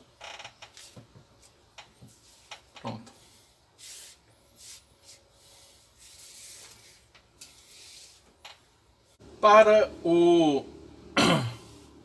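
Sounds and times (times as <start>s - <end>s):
cord rubbing through hands: 0.6s - 8.5s.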